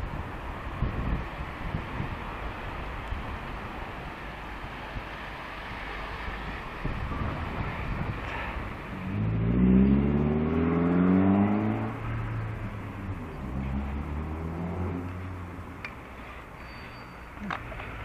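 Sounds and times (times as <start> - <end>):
wind and road rush: 0.0 - 18.0
car engine accelerating: 8.8 - 15.7.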